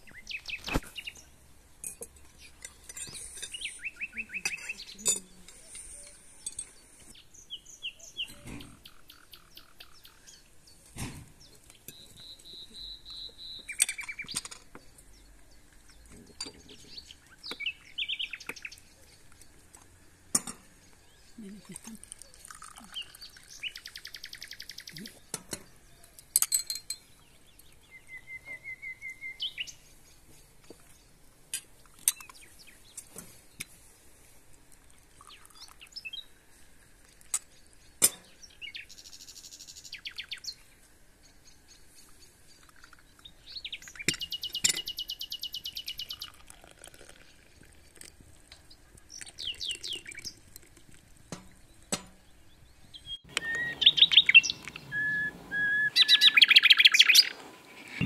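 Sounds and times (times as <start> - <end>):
songbirds trilling: 0.0 - 26.4, 27.0 - 31.2, 35.2 - 36.4, 37.3 - 47.2, 48.6 - 50.4, 51.4 - 58.0
tea glasses clinking: 1.8 - 6.8, 21.7 - 23.2, 26.4 - 27.1.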